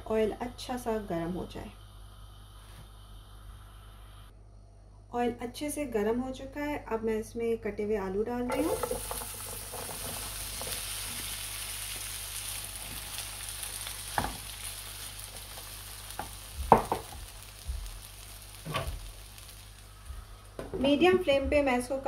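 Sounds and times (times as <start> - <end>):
potatoes sizzling in oil: 8.5 - 22.0.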